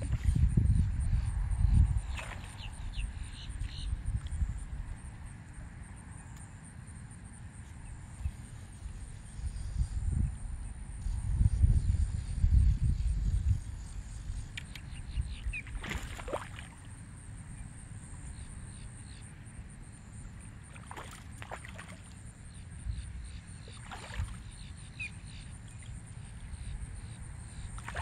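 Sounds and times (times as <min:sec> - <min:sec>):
low wind rumble on microphone: 0:00.0 - 0:05.8, 0:07.8 - 0:18.8
water splashing: 0:02.1 - 0:02.7, 0:15.6 - 0:17.0, 0:20.7 - 0:22.2, 0:23.7 - 0:24.5, 0:27.8 - 0:28.0.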